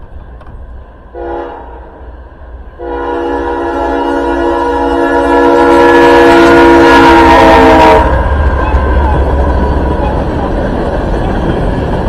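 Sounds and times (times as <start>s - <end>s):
locomotive air horn blasts: 1.1s - 1.9s, 2.8s - 8.2s
steady low rumble: 8.0s - 12.0s.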